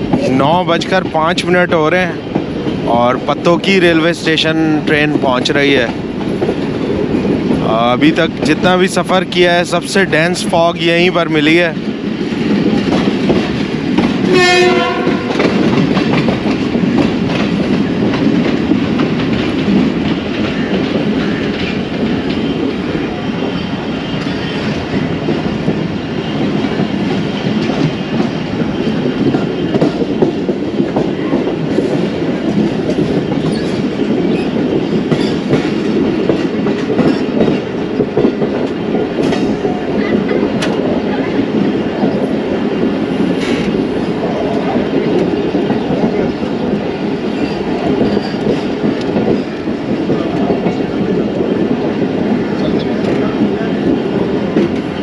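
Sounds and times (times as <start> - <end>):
train rumbling on rails: 0.0 - 55.0
locomotive horn blast: 14.3 - 15.4.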